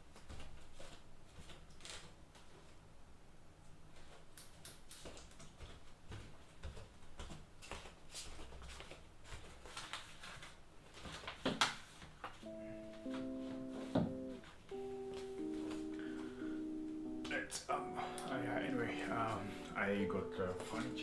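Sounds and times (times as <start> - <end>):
knocks and rustles of person moving: 0.0 - 17.4
papers being handled: 7.7 - 14.7, 18.2 - 21.0.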